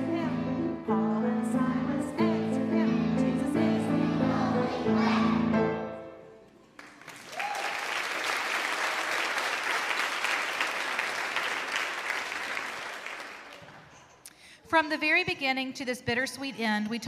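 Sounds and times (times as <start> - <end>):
audience applauding: 6.7 - 14.0.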